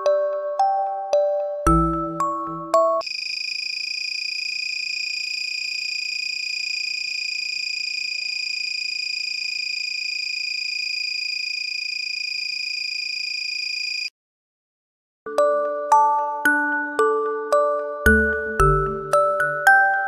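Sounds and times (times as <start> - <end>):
piezo buzzer steady high tone: 3.0 - 14.1.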